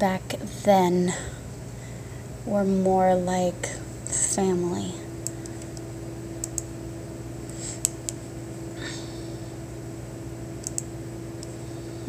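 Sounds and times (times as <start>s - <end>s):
steady low hum: 0.0s - 12.0s
faint sharp clicks: 10.6s - 11.6s.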